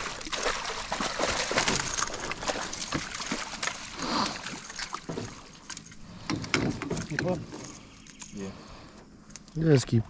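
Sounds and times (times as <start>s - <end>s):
water splashing and dripping: 0.0s - 6.0s
sharp knocks on boat: 6.2s - 7.5s.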